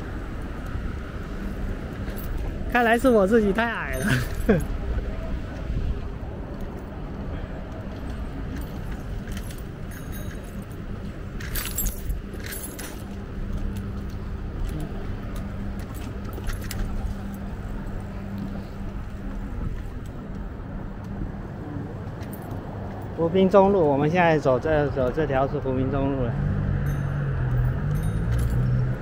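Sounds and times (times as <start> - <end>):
steady low hum: 0.0 - 23.5
bike road rumble: 0.0 - 29.0
wind: 0.0 - 29.0
metallic jingles and rattling clicks: 1.4 - 4.8, 7.6 - 20.4, 22.1 - 24.1, 26.6 - 29.0.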